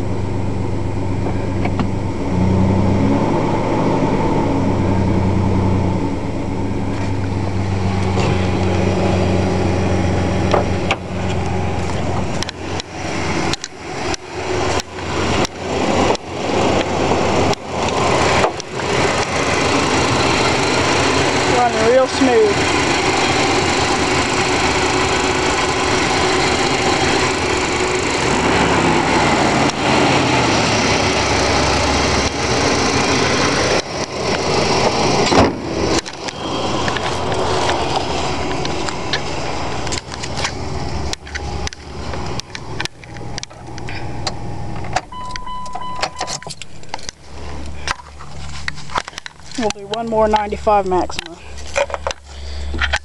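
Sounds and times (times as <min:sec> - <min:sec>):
car engine idling: 0:00.0 - 0:53.0
short steady beep: 0:45.1 - 0:46.4.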